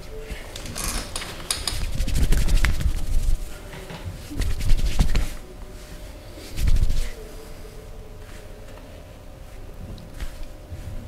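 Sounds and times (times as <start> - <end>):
hands rubbing skin and fabric: 0.4 - 3.5, 4.2 - 7.2, 9.5 - 10.9.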